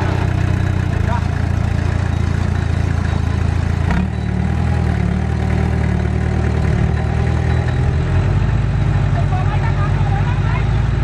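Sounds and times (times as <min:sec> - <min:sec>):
bulldozer diesel engine running: 0:00.0 - 0:11.0.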